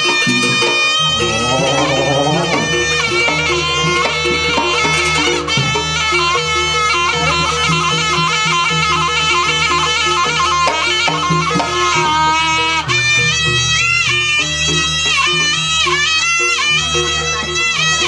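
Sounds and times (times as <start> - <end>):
hand drums: 0.0 - 18.0
shrill reed horn melody: 1.0 - 4.3.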